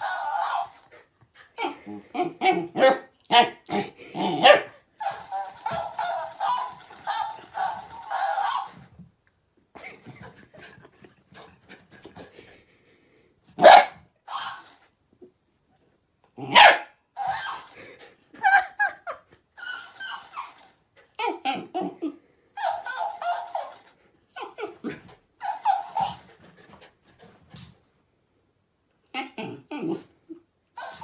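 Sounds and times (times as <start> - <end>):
dog barking and yapping: 0.0 - 0.9, 1.6 - 3.7, 4.4 - 8.9, 13.6 - 14.8, 16.5 - 17.8, 19.6 - 20.6, 22.6 - 24.8, 25.4 - 26.5, 30.8 - 31.0.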